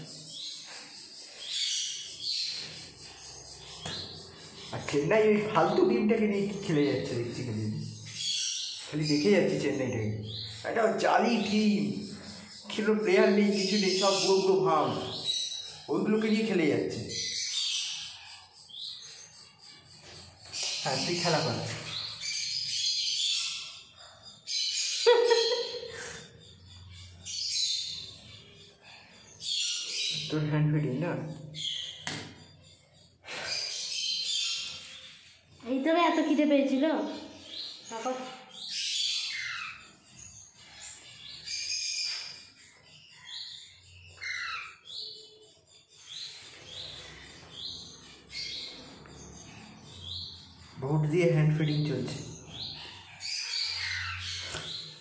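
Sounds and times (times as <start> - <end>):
parakeet chirping: 0.0 - 55.0.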